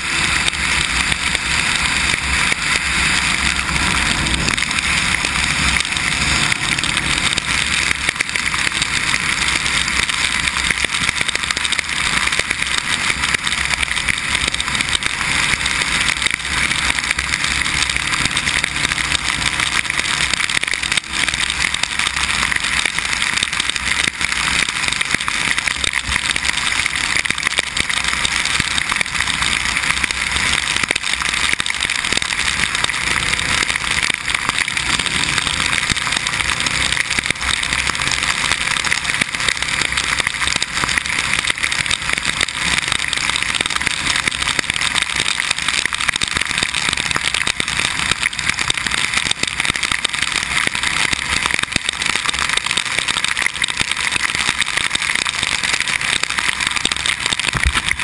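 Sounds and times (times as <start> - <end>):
wind and road spray rushing: 0.0 - 7.4
motorcycle engine running: 0.0 - 45.0
raindrops ticking on camera: 0.0 - 58.0.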